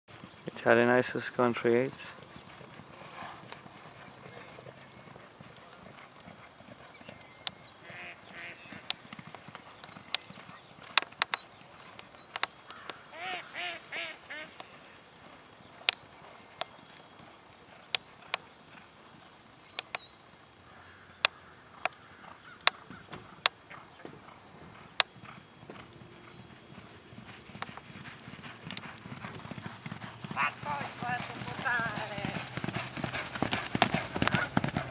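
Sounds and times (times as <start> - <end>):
bird chirping: 0.1 - 15.0, 15.6 - 20.3, 20.9 - 25.2, 26.0 - 34.9
honking calls: 29.8 - 34.9.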